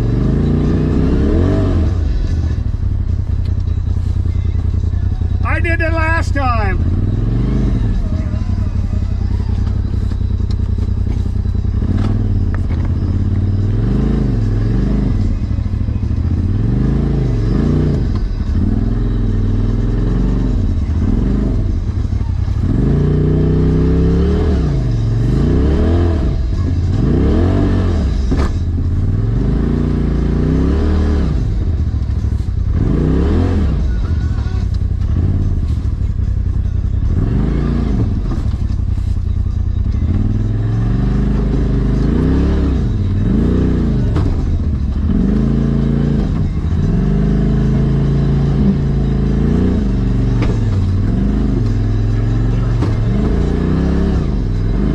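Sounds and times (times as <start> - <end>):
engine revving up and dropping: 0.0 - 2.0, 22.6 - 28.6.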